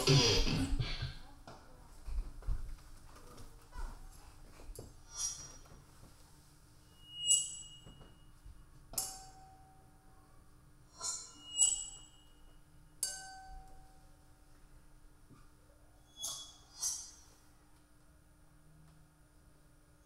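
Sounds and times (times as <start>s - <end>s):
faint steady hum: 0.0s - 20.0s
bright ringing clinks: 11.0s - 14.0s.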